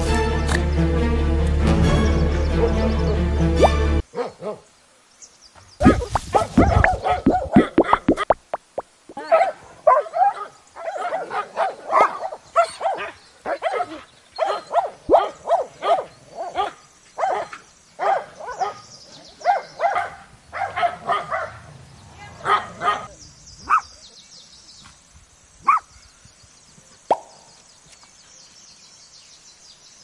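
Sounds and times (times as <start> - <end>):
small dog yapping: 5.8 - 8.2.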